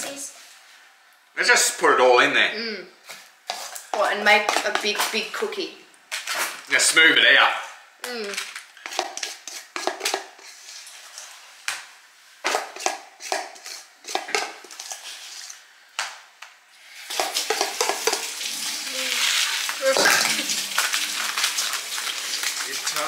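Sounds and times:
steady hiss: 16.7s - 23.0s.

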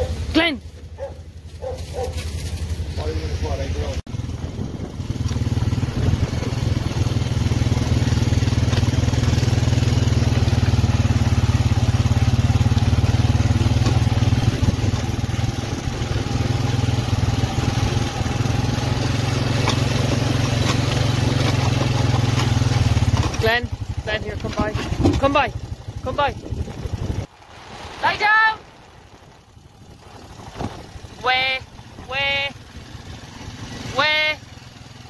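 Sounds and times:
farm vehicle engine running: 0.0s - 35.0s.

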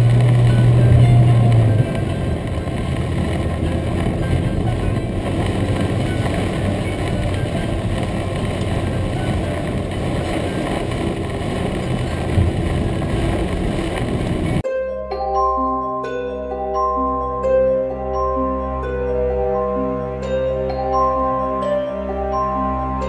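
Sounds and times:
heavy rain on a car roof: 0.0s - 14.6s
moving car rumble: 0.0s - 14.7s, 15.3s - 23.0s.

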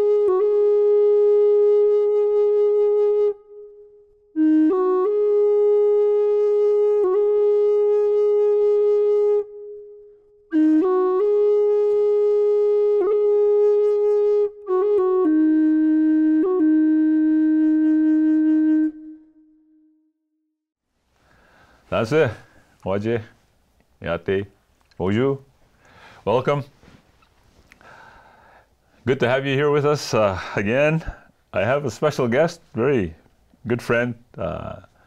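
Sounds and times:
solo wind instrument melody: 0.0s - 20.2s.

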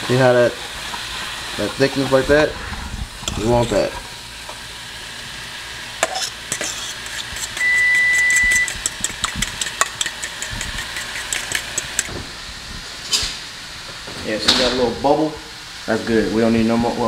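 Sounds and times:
frying sizzle: 0.0s - 17.0s
high beep: 7.6s - 8.7s
spoon clicking against steel bowl: 8.5s - 12.1s.

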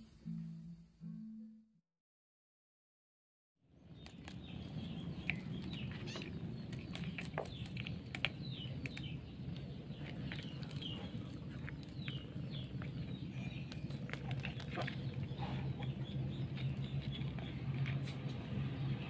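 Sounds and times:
kittens chirping: 3.9s - 18.3s.

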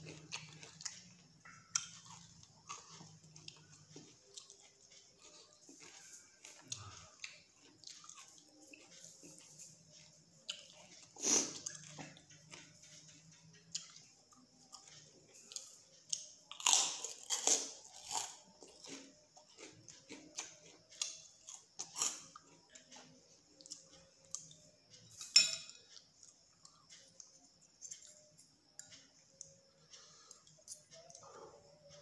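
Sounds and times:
chewing crunchy food: 0.0s - 25.2s.

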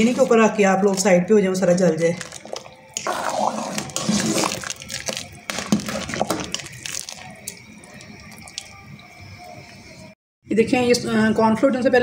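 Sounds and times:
spoon stirring soup in a pot: 2.2s - 9.6s.

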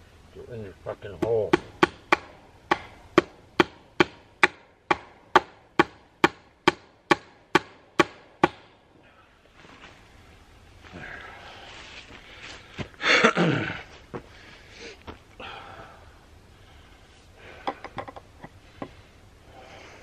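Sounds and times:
hammer striking wooden post: 1.2s - 8.8s.

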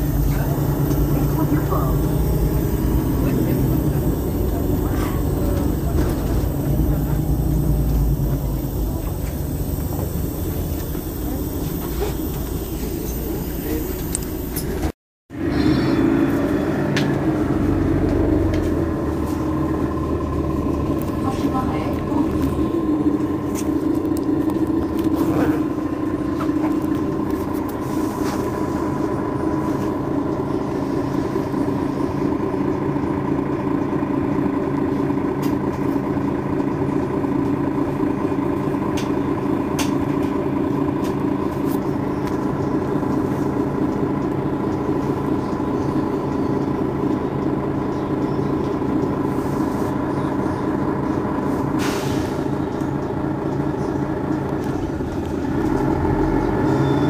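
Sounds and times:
high whine: 0.0s - 29.5s
diesel bus engine idling: 0.0s - 57.0s
short hiss: 51.8s - 52.5s.

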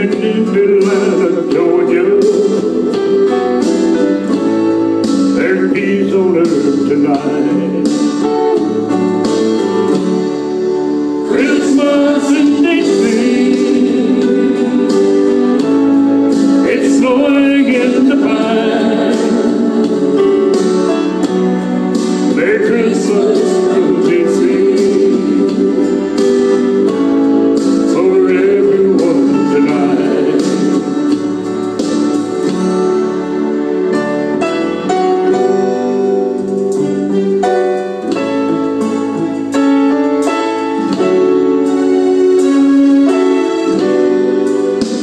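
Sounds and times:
person singing: 0.0s - 3.2s, 5.3s - 9.0s, 11.2s - 31.4s.

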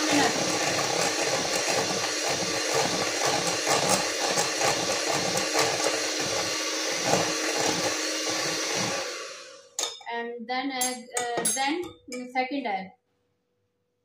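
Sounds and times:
electric hand mixer running: 0.0s - 9.8s.

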